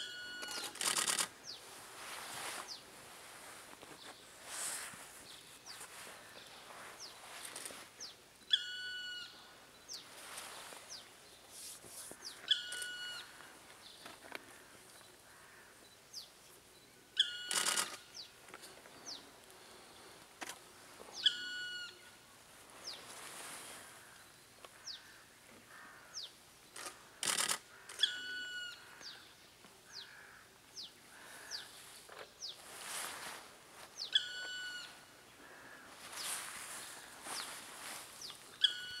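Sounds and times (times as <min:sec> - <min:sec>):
woodpecker call: 0:00.0 - 0:01.3, 0:08.5 - 0:09.5, 0:12.3 - 0:13.4, 0:17.2 - 0:18.4, 0:21.2 - 0:22.2, 0:24.8 - 0:29.3, 0:34.0 - 0:35.9, 0:38.5 - 0:39.0
small birds chirping: 0:00.0 - 0:39.0.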